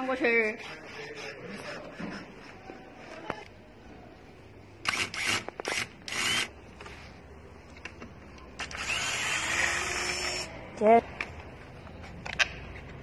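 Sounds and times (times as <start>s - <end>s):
electric screwdriver turning screws: 4.8s - 6.5s, 8.6s - 10.5s.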